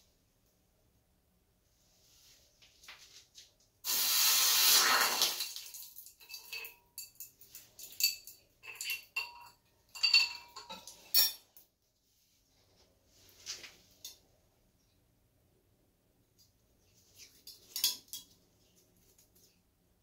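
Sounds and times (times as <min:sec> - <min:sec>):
hot metal sizzling in water: 0:03.9 - 0:06.4
metallic clinks against a dish: 0:06.0 - 0:11.5.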